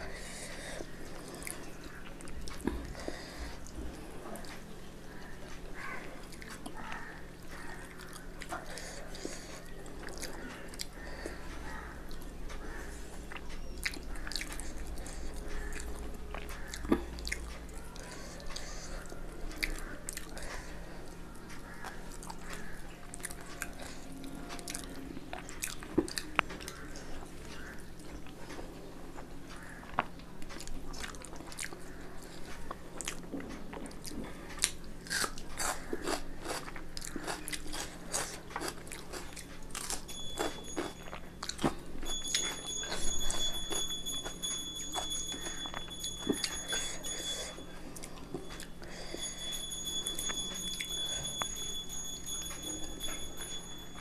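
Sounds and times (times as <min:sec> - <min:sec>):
person chewing and crunching food: 0:00.0 - 0:54.0.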